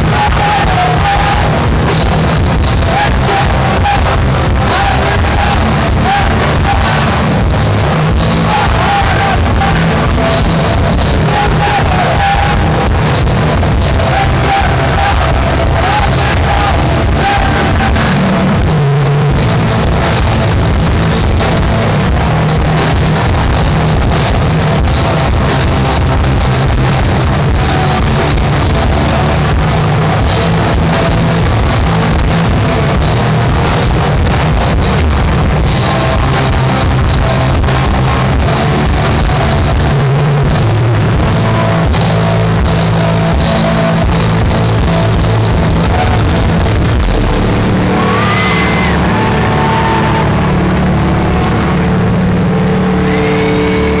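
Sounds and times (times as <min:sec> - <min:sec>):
guitar amplifier feedback drone: 0:00.0 - 0:54.0
punk band playing live: 0:00.0 - 0:54.0
loud wash of noise: 0:44.0 - 0:54.0.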